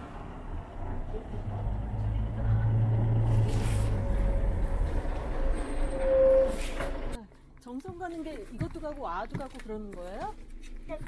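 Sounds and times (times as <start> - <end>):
coach engine rumbling past: 0.0 - 7.2
brief high squeal: 5.8 - 6.9.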